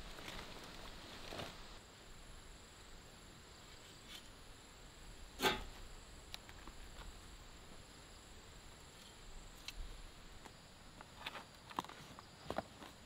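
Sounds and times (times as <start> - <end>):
leaves rustling: 0.0 - 2.6.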